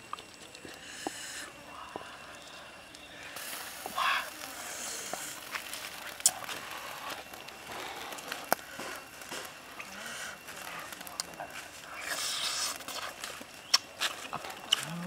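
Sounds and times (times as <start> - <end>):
person chewing: 12.1 - 15.0.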